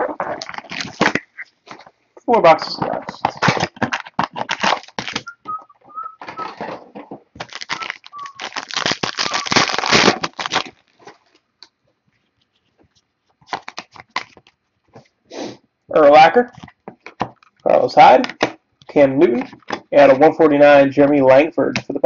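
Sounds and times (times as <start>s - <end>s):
plastic wrapper crinkling and tearing: 0.0s - 1.9s, 2.9s - 6.8s, 7.4s - 11.4s, 13.4s - 14.6s.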